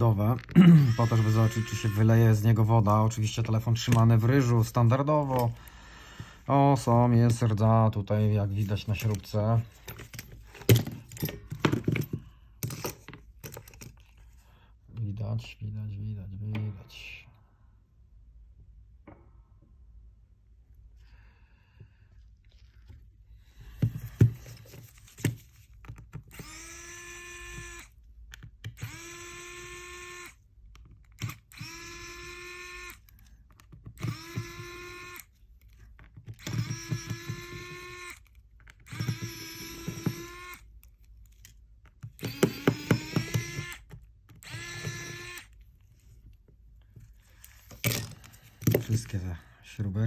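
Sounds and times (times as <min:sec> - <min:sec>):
electric screwdriver whine: 0:00.6 - 0:02.4, 0:26.3 - 0:28.0, 0:28.8 - 0:30.4, 0:31.2 - 0:33.1, 0:34.0 - 0:35.3, 0:36.4 - 0:40.7, 0:42.2 - 0:45.6.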